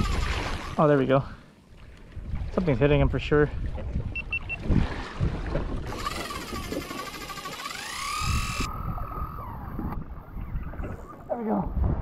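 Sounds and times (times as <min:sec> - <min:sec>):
fishing reel drag screaming: 0:00.0 - 0:00.8, 0:05.9 - 0:11.2.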